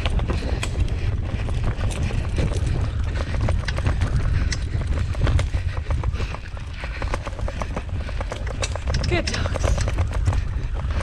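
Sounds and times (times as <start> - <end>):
low rumble of rig moving: 0.0 - 11.0
paws pattering on dirt trail: 0.0 - 11.0.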